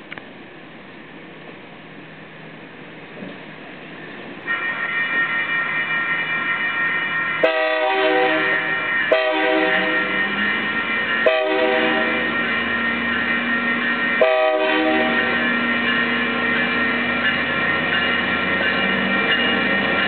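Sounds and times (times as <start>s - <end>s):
locomotive air horn: 7.4s - 10.2s, 11.2s - 12.4s, 14.2s - 15.4s.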